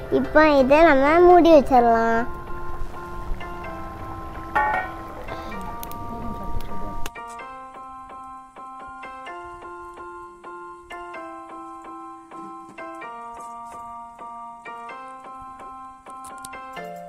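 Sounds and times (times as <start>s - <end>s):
keyboard tune: 0.0s - 17.0s.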